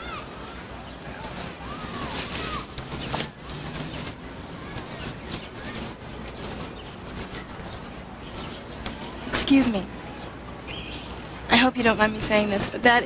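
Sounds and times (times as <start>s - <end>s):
plastic bags crinkling: 1.2s - 8.7s.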